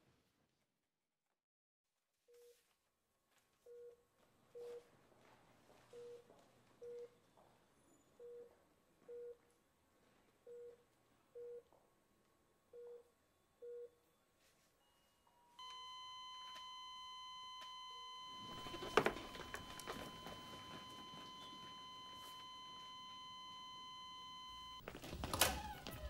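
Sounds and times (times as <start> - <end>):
patient monitor beeping: 3.7 - 4.9, 5.9 - 7.2, 8.2 - 9.4, 10.4 - 11.7, 15.6 - 24.9
continuous high alarm tone: 15.6 - 24.9.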